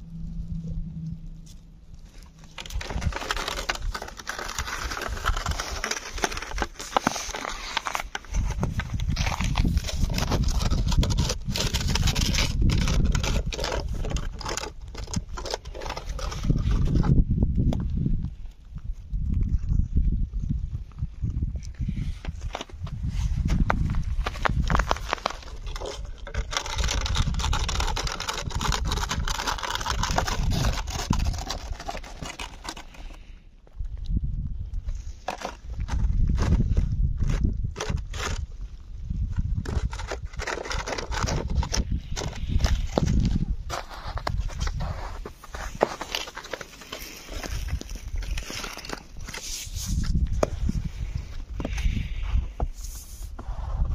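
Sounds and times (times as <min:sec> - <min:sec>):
low rumble: 0:00.0 - 0:05.4
cat chewing and crunching: 0:02.0 - 0:17.2, 0:24.2 - 0:34.2, 0:39.4 - 0:49.5.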